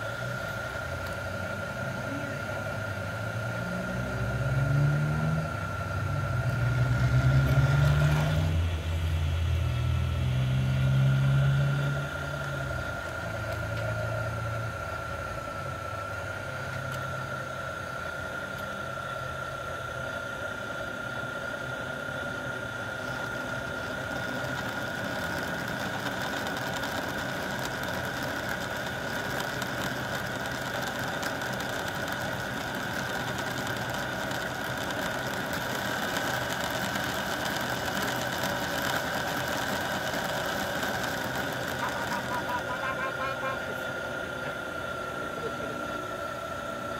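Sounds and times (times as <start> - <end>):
model train motor whine: 0.0 - 46.9
wheels rumbling on track: 1.1 - 14.6, 23.0 - 44.6.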